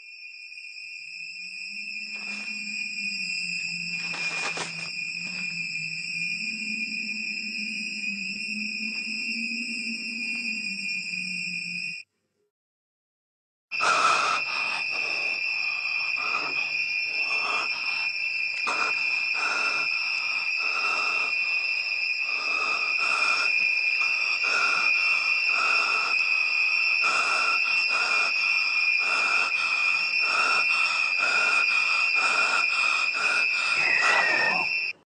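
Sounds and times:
high-pitched whine: 0.0 - 12.1, 13.8 - 35.0.

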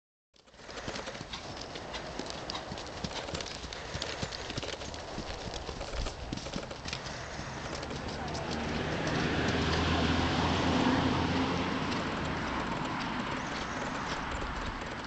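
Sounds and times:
horse hoofbeats on dirt: 0.4 - 15.0.

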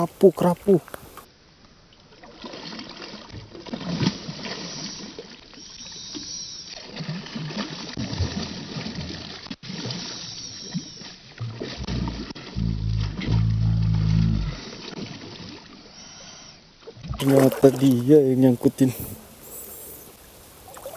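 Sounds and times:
fish splashing at water surface: 17.1 - 18.6.

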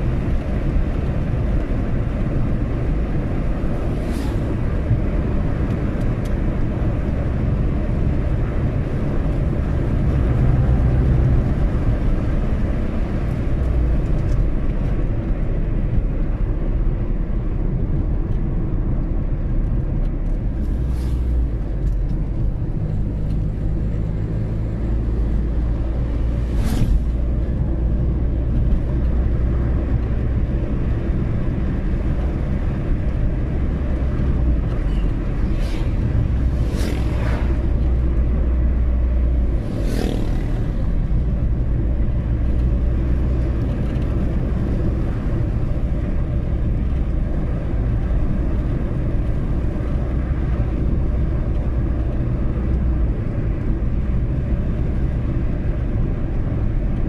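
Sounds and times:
car engine and tyre rumble: 0.0 - 57.0
brief swishes: 26.3 - 27.2, 35.4 - 37.9.

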